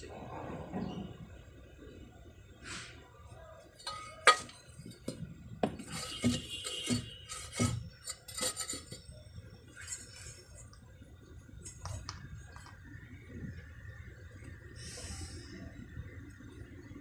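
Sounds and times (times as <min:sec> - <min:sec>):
metal pieces clinking: 0:03.8 - 0:05.2, 0:05.8 - 0:09.0.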